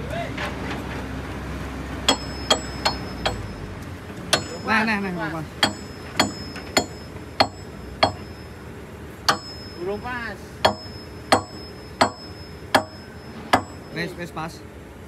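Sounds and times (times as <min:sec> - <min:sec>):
hammer blows of steel on steel: 0:02.1 - 0:03.6, 0:04.3 - 0:04.9, 0:05.6 - 0:08.4, 0:09.3 - 0:09.8, 0:10.6 - 0:13.9.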